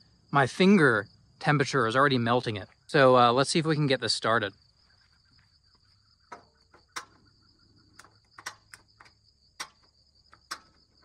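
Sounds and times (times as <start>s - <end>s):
insects chirring: 0.0s - 11.0s
gas grill igniter clicks: 8.0s - 10.8s.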